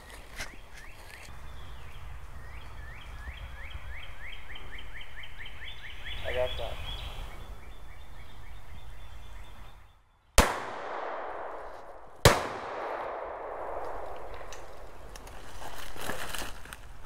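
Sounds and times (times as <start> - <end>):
echo through trees: 0.8 - 15.4
shotgun shots: 10.4 - 14.8.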